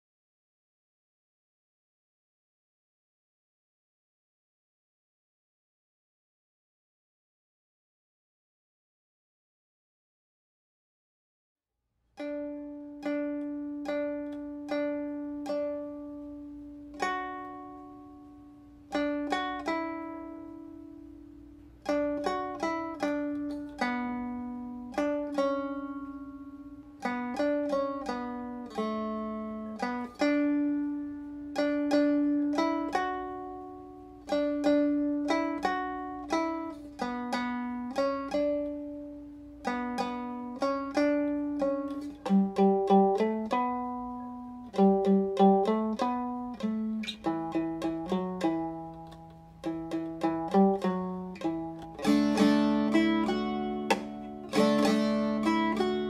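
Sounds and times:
plucked string melody: 12.1s - 56.0s.

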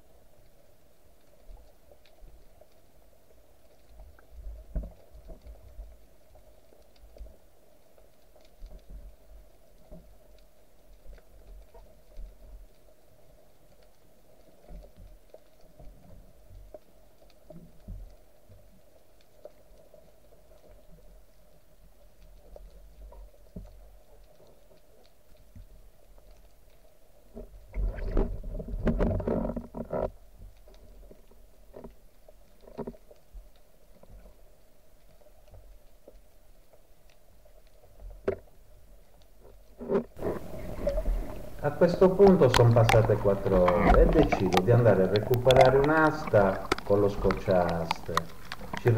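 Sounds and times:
small clicks and crackles: 0.0s - 48.9s
underwater water hum: 0.0s - 48.9s
muffled thumps of water movement: 27.3s - 32.0s, 39.4s - 48.9s
faint steady hum: 30.0s - 48.9s.

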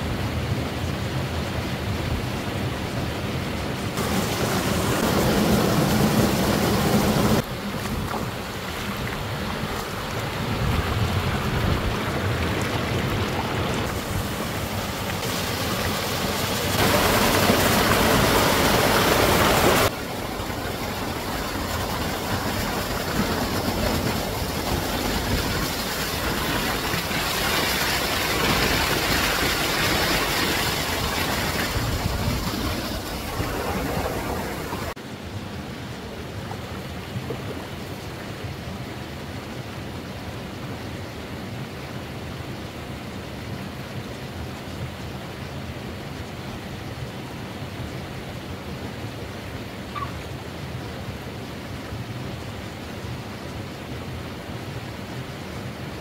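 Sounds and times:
waterfall rushing: 3.3s - 35.3s.

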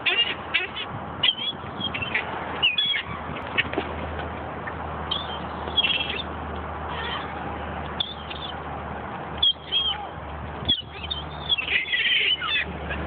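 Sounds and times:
gulls calling: 0.0s - 4.0s, 4.6s - 8.7s, 9.4s - 13.0s.

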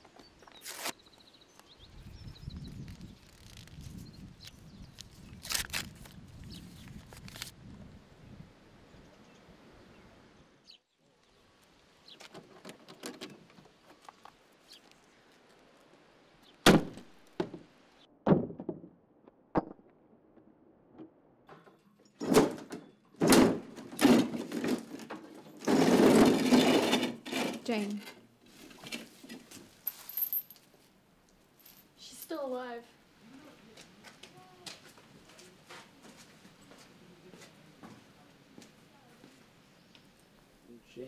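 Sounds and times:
door scraping open: 25.6s - 27.7s.

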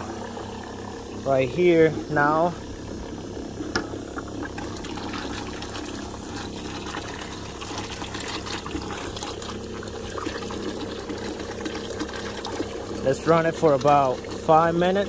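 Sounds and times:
pump hum: 0.0s - 15.0s
liquid splashing into bucket: 4.1s - 15.0s.

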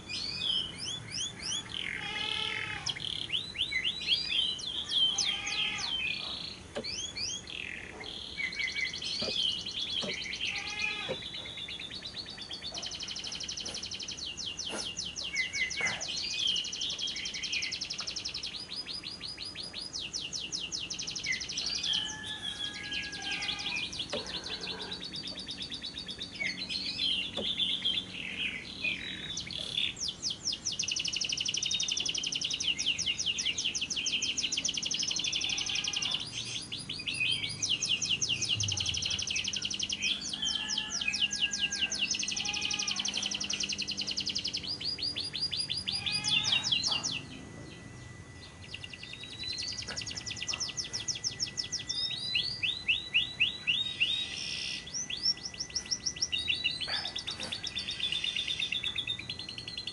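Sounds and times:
squeaky bird chirps: 4.4s - 11.6s, 34.4s - 47.5s
lovebird trilling chatter: 4.8s - 17.0s, 37.4s - 47.4s.

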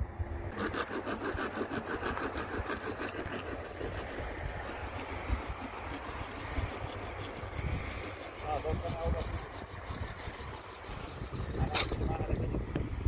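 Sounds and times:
hand saw cutting plastic pipe: 0.5s - 12.3s.

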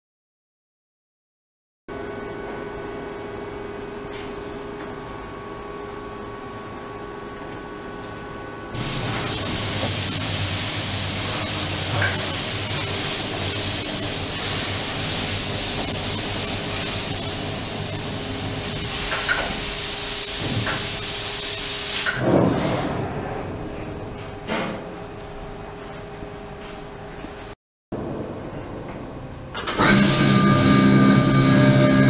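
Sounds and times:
loud steady hiss: 8.8s - 22.2s, 29.8s - 32.0s.

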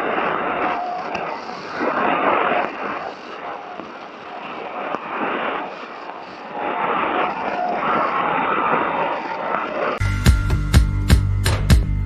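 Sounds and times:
faint steady whistle: 0.0s - 9.6s
radio hiss and static: 0.0s - 10.0s.

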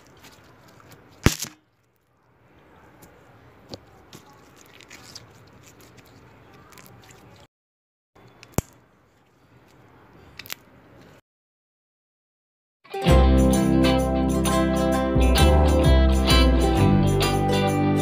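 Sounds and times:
slime squishing: 0.0s - 2.1s, 2.9s - 7.5s.

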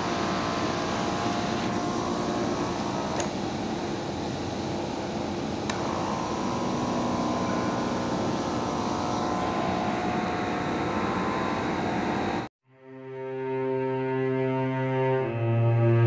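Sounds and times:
motor whirring hum: 0.0s - 12.5s
steady whine: 0.0s - 12.5s.

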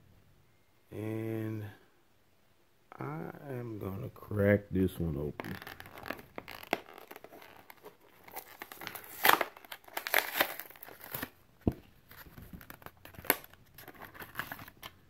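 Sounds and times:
cardboard ripping: 5.4s - 11.4s
plastic blister crinkling: 5.4s - 15.0s.

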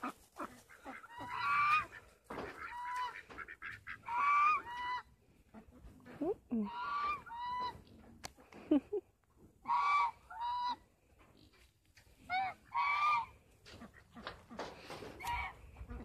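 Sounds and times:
fowl calling: 0.0s - 5.8s, 9.6s - 10.8s, 12.3s - 16.0s.

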